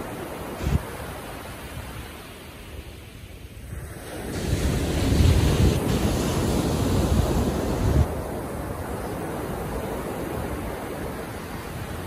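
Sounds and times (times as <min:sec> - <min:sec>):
waves breaking on beach: 0:00.0 - 0:12.0
wind buffeting microphone: 0:03.6 - 0:12.0.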